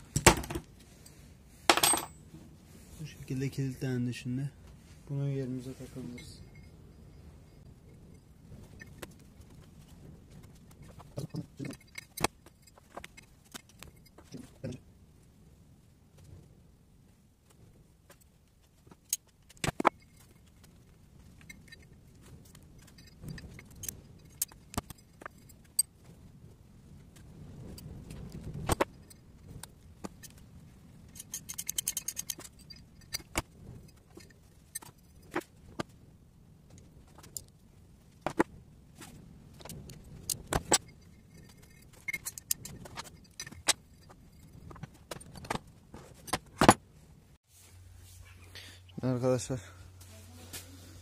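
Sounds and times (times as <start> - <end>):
wrench and nuts clinking on metal: 1.7 - 2.2, 31.1 - 33.3, 39.6 - 45.6.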